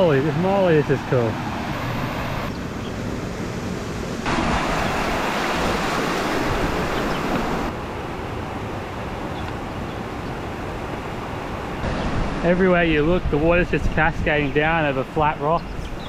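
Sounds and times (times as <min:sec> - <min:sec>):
water cascading over rocks: 0:04.2 - 0:07.7.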